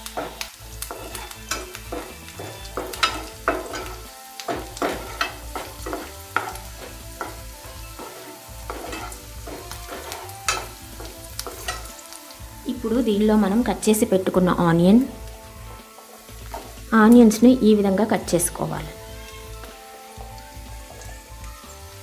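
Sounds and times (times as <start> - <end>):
spatula scraping and tapping pan: 0.0 - 12.4, 15.2 - 16.9
garlic sizzling in hot oil: 0.0 - 22.0.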